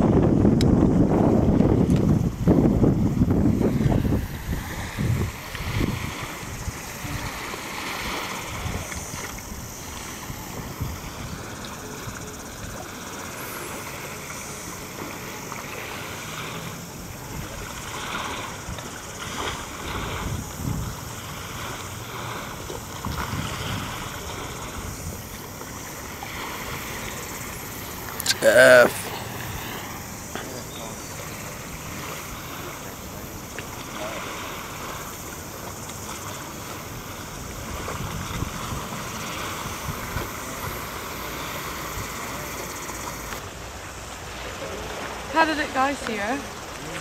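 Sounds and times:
wind buffeting microphone: 0:00.0 - 0:13.1, 0:17.0 - 0:28.2, 0:37.0 - 0:43.4
water hissing: 0:02.2 - 0:47.0.

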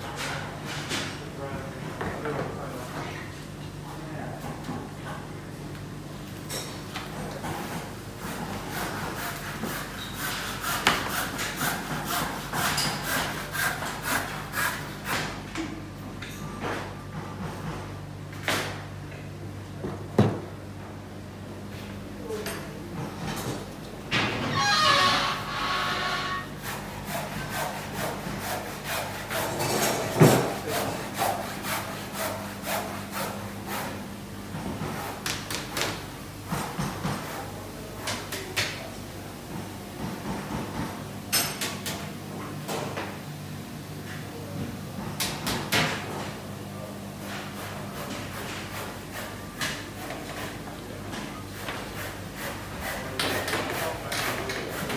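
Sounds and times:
low machine hum: 0:00.0 - 0:53.2
rasping strokes on wood: 0:26.6 - 0:29.5, 0:30.5 - 0:34.0
hand saw cutting timber: 0:26.6 - 0:34.0.

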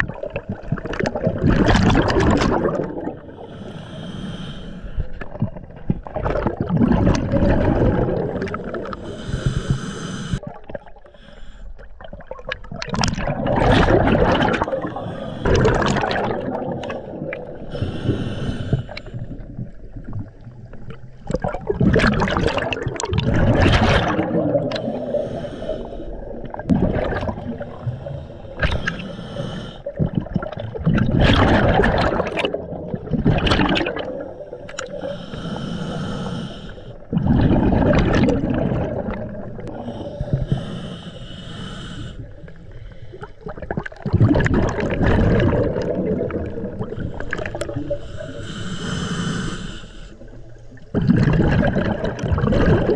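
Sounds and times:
bubbling exhalations underwater: 0:00.0 - 0:03.4, 0:05.2 - 0:09.6, 0:12.0 - 0:18.4, 0:19.0 - 0:25.3, 0:26.1 - 0:28.0, 0:29.9 - 0:35.1, 0:37.1 - 0:40.6, 0:43.2 - 0:48.0, 0:50.8 - 0:52.9
regulator hissing inhalations: 0:03.4 - 0:05.0, 0:08.9 - 0:10.4, 0:11.2 - 0:11.7, 0:14.9 - 0:15.8, 0:17.7 - 0:19.2, 0:24.8 - 0:26.1, 0:27.7 - 0:29.9, 0:34.6 - 0:37.1, 0:39.7 - 0:43.3, 0:46.9 - 0:50.3.

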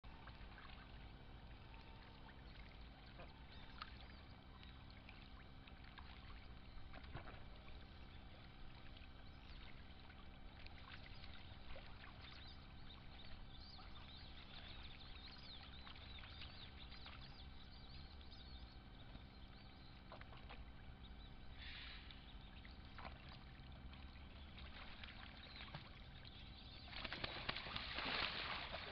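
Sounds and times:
ducks splashing in water: 0:22.9 - 0:28.9.

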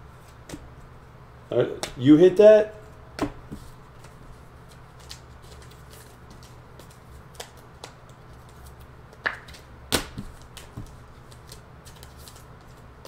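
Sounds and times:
low steady hum: 0:00.0 - 0:13.0
cards tapping on table: 0:09.2 - 0:11.0.

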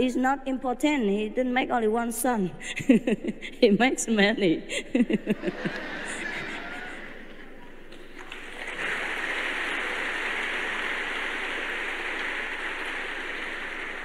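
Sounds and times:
large audience applauding: 0:05.6 - 0:07.5, 0:08.2 - 0:14.0.

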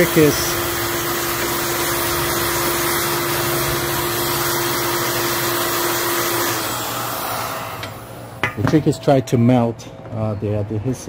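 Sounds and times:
heat gun air hiss: 0:00.0 - 0:08.4
heat gun motor hum: 0:00.0 - 0:08.7.

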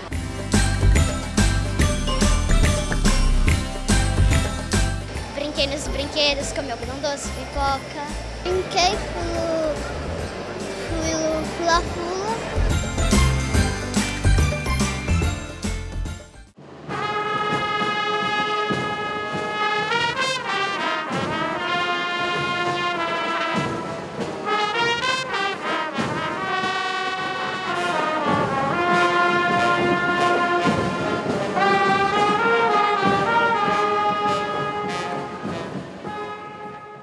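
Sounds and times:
drum strokes: 0:00.0 - 0:36.8
trumpets playing long notes: 0:16.9 - 0:37.0.

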